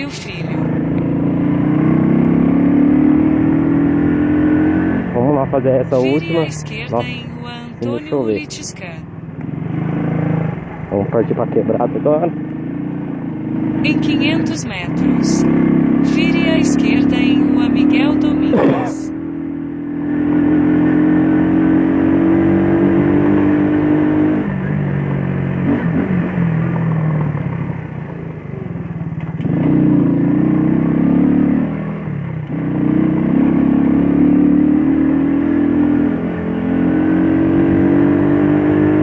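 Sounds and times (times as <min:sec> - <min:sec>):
scooter engine accelerating: 0:09.4 - 0:39.0.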